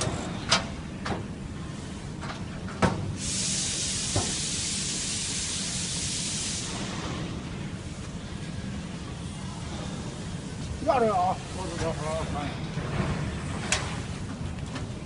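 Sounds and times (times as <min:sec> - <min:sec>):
steady hiss: 0:03.1 - 0:12.4.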